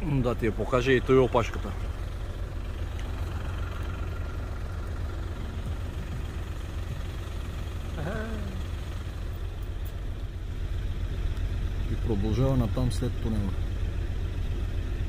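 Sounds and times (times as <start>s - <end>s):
car engine idling: 0.0s - 15.0s
short vocal sound: 7.9s - 8.6s.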